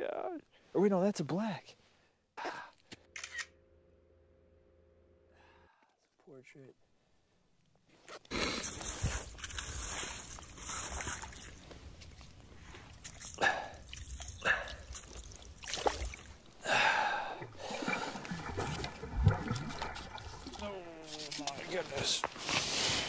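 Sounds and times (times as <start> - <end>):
water and slush splashing: 8.6 - 16.6, 17.4 - 23.0.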